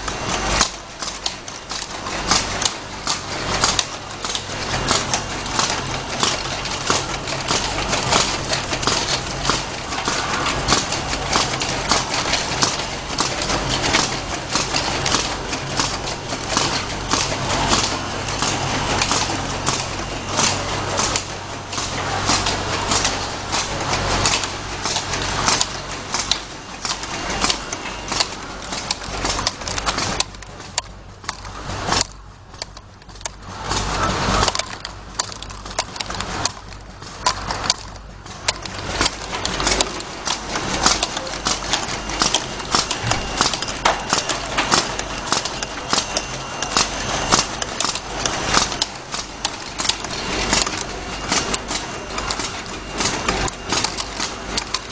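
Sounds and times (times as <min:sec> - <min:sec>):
machine motor hum: 0:00.0 - 0:54.9.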